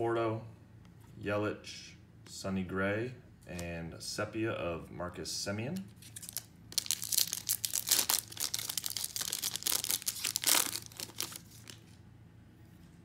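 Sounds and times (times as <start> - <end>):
foil wrapper crinkling: 6.0 - 12.0.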